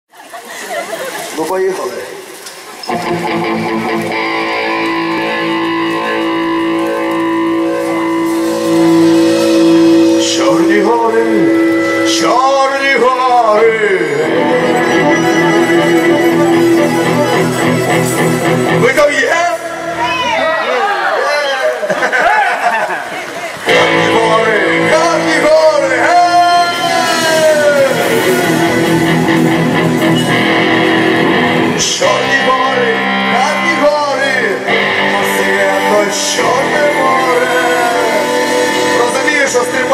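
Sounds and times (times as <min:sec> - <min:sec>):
electric guitar: 0:02.2 - 0:21.8, 0:23.2 - 0:39.9
rock band playing: 0:02.8 - 0:21.0, 0:23.5 - 0:39.9
accordion chords: 0:03.0 - 0:20.1, 0:23.7 - 0:39.9.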